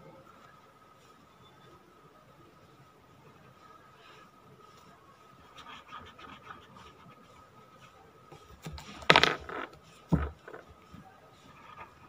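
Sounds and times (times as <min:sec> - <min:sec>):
thump on table: 0:09.0 - 0:10.6.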